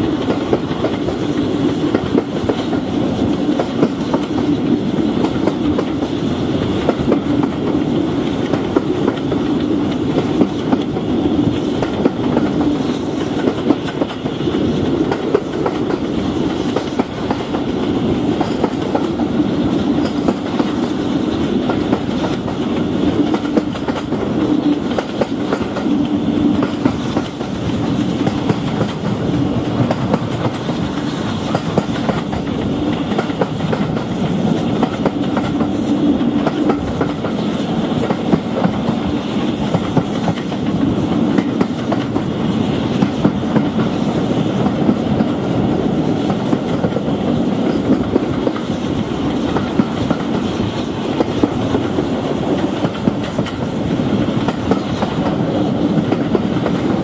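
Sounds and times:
train coaches rumbling and rattling: 0.0 - 57.0.

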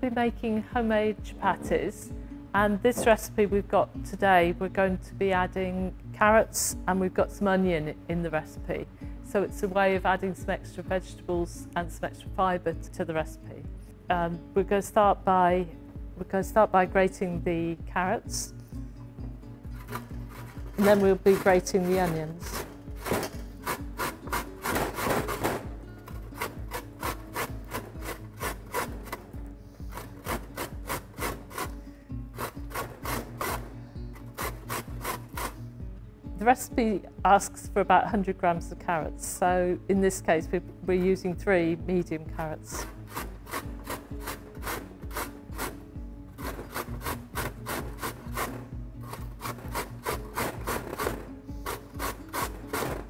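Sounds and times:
carrot rasping on grater: 19.7 - 29.2, 29.9 - 35.6, 42.8 - 45.8, 46.4 - 53.0.

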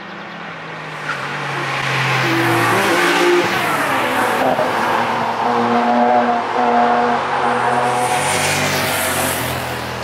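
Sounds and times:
car driving past at speed: 6.4 - 10.0.

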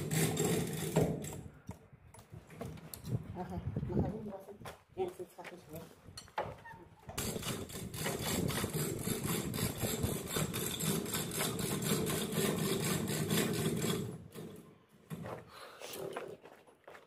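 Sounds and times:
chain hoist running: 7.2 - 14.4.

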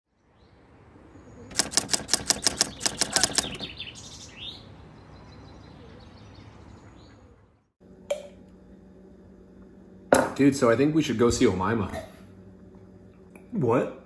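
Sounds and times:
bird chirps: 0.2 - 7.3
typewriter key clicks: 1.5 - 3.6.

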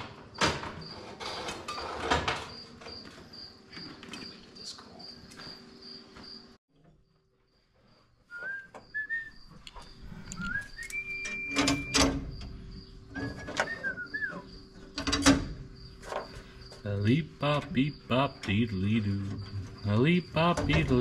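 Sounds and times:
man whistling a tune: 8.3 - 9.4, 10.4 - 12.0, 13.2 - 14.4.

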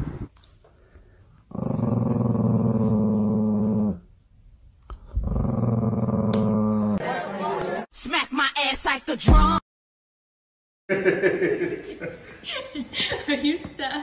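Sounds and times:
small dog growling: 1.5 - 4.0, 5.0 - 7.0.

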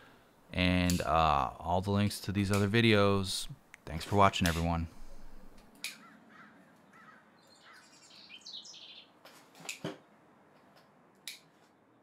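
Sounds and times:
birds chirping: 4.6 - 9.2.

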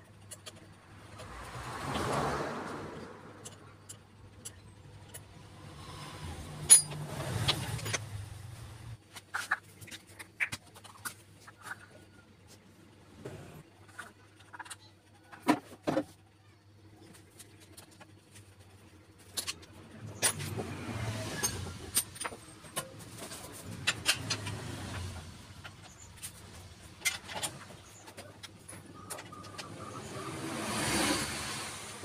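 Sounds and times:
vehicle engine rumbling: 0.0 - 32.0
knocks and clicks on bike: 21.4 - 30.1.

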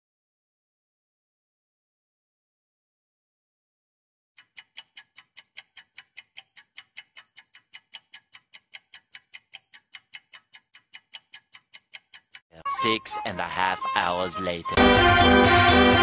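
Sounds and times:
fast clock ticking: 4.4 - 12.5.

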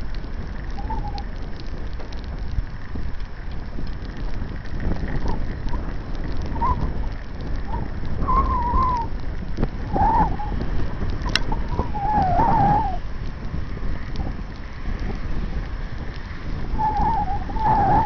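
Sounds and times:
wind rumbling on microphone: 0.0 - 18.0
wavering whistling tone: 0.8 - 1.3, 6.5 - 7.0, 7.6 - 9.1, 9.8 - 10.6, 11.2 - 13.0, 16.8 - 18.0.

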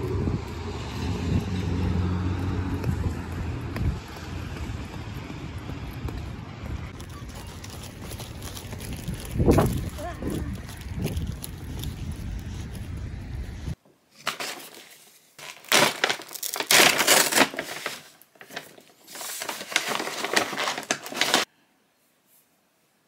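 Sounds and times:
wind rumbling on microphone: 0.0 - 13.8
paper bag crinkling: 7.0 - 12.8, 14.2 - 21.5.

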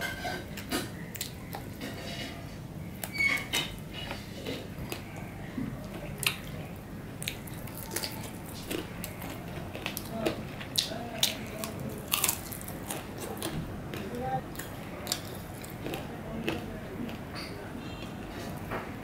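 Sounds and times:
wet chewing: 0.5 - 18.7.

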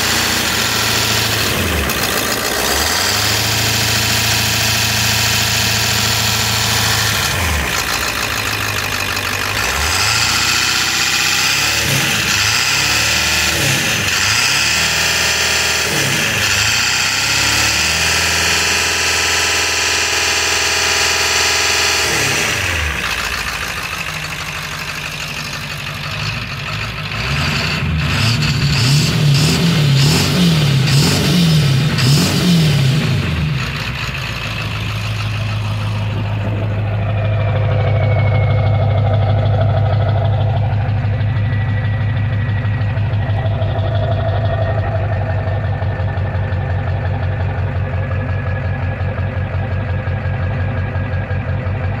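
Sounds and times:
diesel engine revving and idling: 0.0 - 52.0
faint turbo whistle: 36.4 - 44.2.

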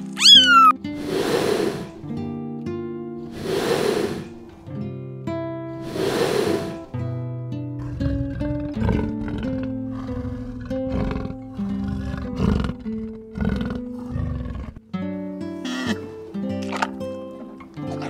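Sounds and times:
plucked melody music: 2.0 - 3.2, 14.8 - 18.0
big cat roaring and growling: 5.8 - 7.0, 7.8 - 14.8.

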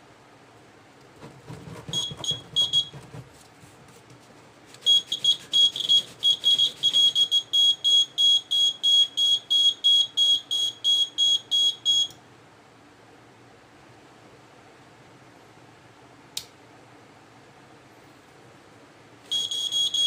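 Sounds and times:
piezo buzzer short high beeps: 1.9 - 2.9, 4.9 - 12.1, 19.3 - 20.0.

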